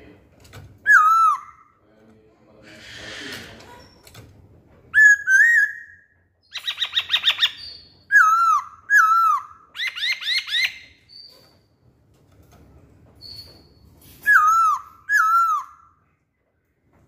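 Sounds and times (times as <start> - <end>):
bird singing whistled phrases: 0.9 - 1.6, 5.0 - 11.3, 14.2 - 15.9.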